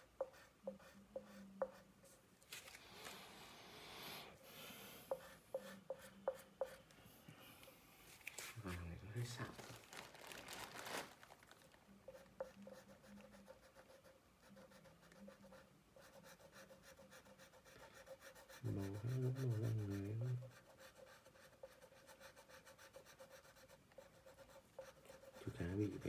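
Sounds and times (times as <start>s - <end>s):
crayon scratching on paper: 0.0s - 2.2s, 5.1s - 6.9s, 12.0s - 26.0s.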